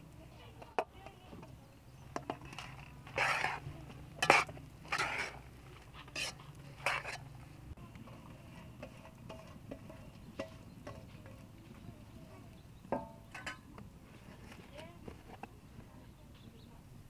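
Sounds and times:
metal spoon scraping a pot: 2.1s - 7.4s, 8.1s - 11.5s, 13.0s - 14.5s.

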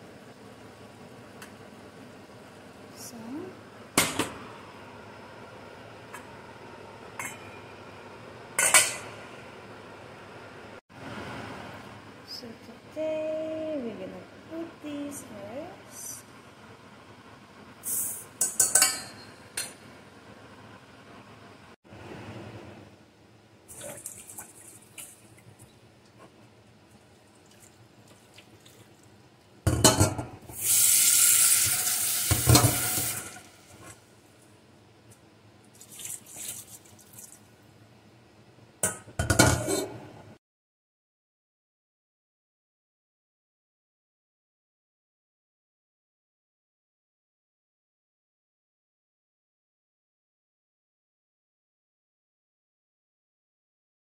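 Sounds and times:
water splashing into sink: 23.7s - 25.6s, 35.7s - 37.5s
rice swishing in water: 35.8s - 37.4s.

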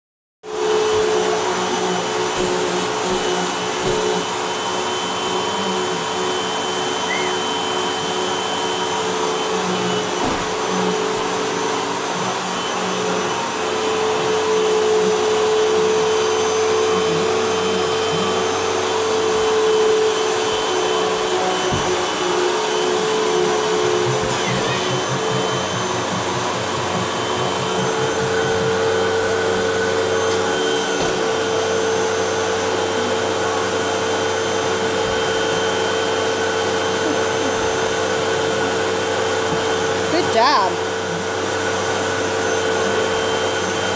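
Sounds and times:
vacuum cleaner running: 0.4s - 43.9s.

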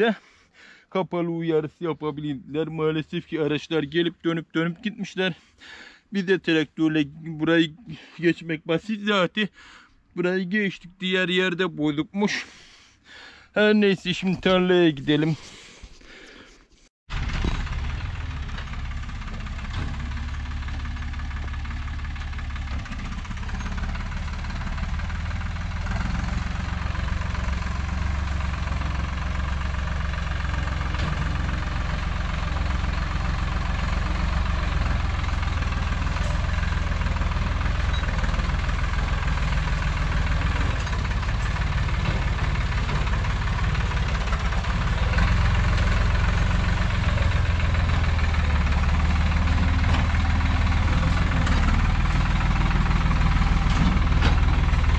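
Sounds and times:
tractor diesel engine running: 17.1s - 54.9s.

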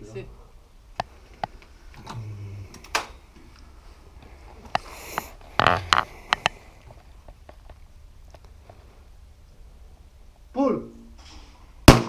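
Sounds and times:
short breathy hiss: 4.8s - 6.8s.

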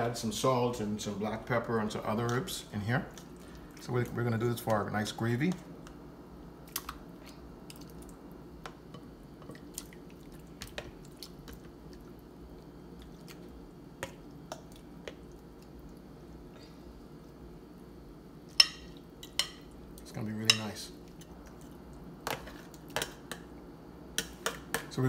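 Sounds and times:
wet squishes of tomato: 9.5s - 16.1s.

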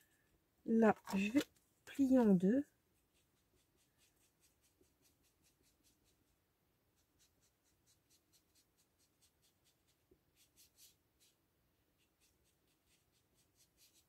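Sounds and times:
quick rubbing strokes on card: 3.0s - 11.4s, 12.0s - 14.0s.

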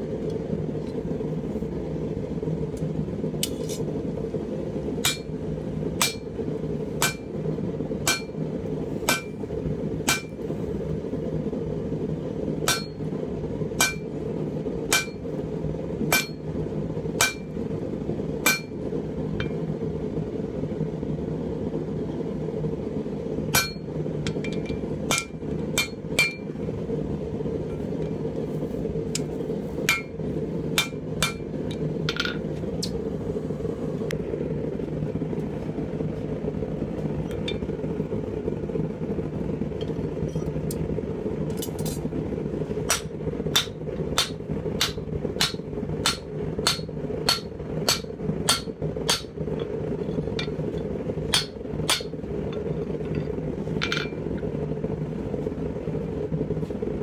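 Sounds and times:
low steady rumble: 0.0s - 57.0s
hammer striking hot steel: 3.4s - 3.9s, 5.0s - 7.4s, 8.0s - 10.5s, 12.6s - 13.1s, 13.7s - 14.2s, 14.8s - 15.4s, 16.0s - 17.6s, 18.4s - 19.7s, 23.5s - 26.6s, 29.1s - 33.0s, 42.8s - 54.4s.

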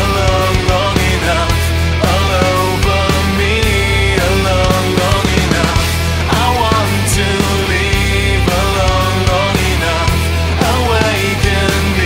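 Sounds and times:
rock music with heavy bass: 0.0s - 12.0s.

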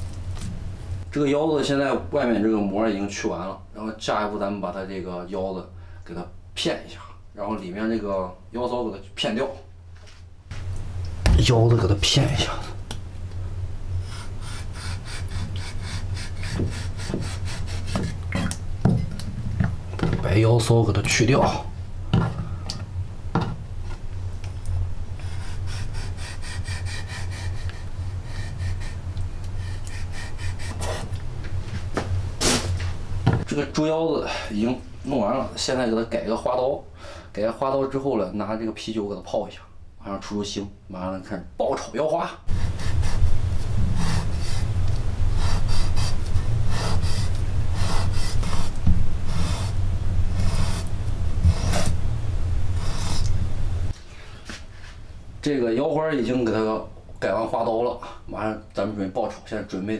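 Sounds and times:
steady low hum: 0.0s - 59.9s
cleaver scraping strokes: 14.0s - 18.2s, 25.2s - 31.2s, 42.5s - 52.0s, 52.7s - 53.4s.

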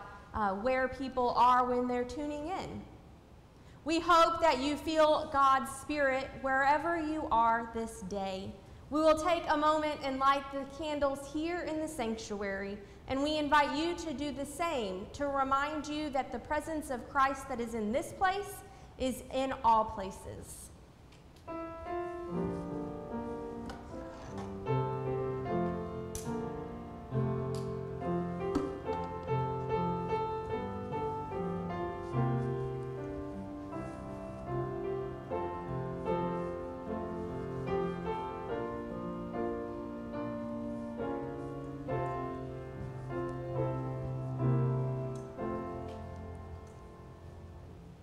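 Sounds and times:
slow piano piece: 21.4s - 48.0s.

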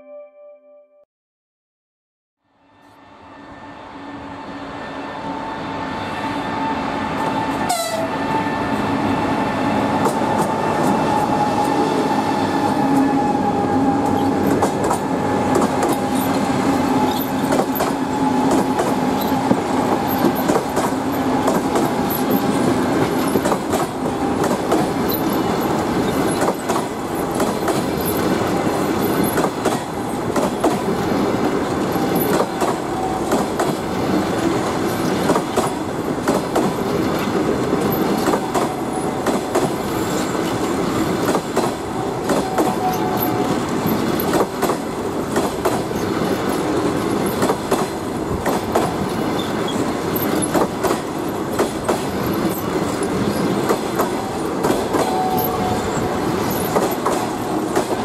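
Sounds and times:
electric locomotive whine: 2.4s - 58.0s
wheels clattering over rail joints: 14.1s - 30.9s, 34.4s - 58.0s.

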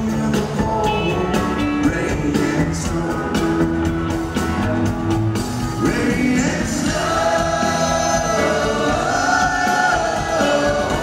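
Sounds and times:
live rock band: 0.0s - 11.0s
singers holding notes in harmony: 5.8s - 11.0s.

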